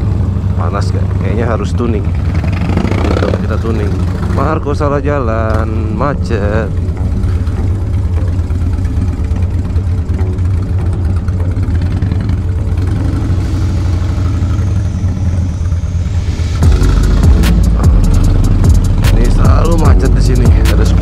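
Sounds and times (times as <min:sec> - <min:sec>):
motorcycle engine running: 0:00.0 - 0:21.0
loud music: 0:09.7 - 0:21.0.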